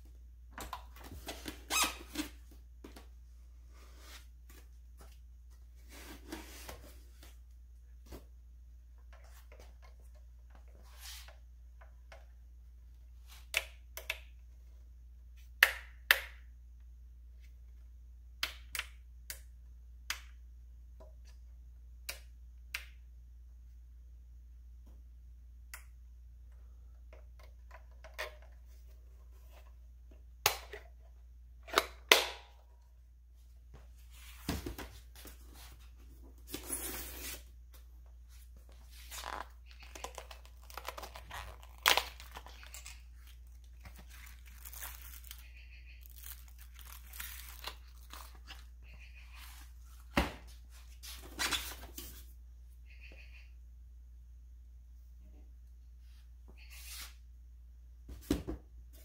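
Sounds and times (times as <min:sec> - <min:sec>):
packaging rustling and tearing: 0:39.8 - 0:45.4, 0:46.0 - 0:48.5.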